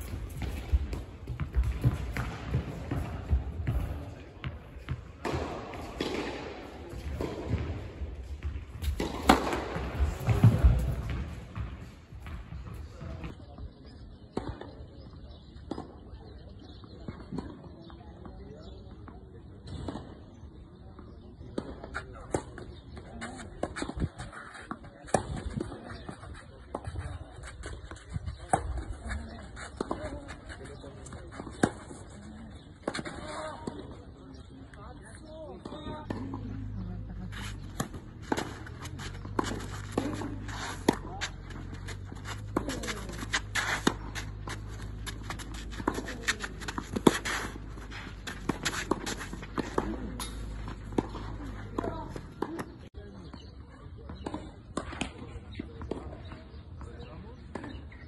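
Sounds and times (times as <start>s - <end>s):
shoes on clay: 0.0s - 14.6s, 21.0s - 58.0s
tennis balls struck by rackets: 0.0s - 20.4s, 21.0s - 53.5s, 54.1s - 58.0s
racket hitting ball: 5.2s - 7.8s, 8.8s - 11.3s, 35.7s - 52.8s
shoes scuffing on clay: 37.0s - 52.3s.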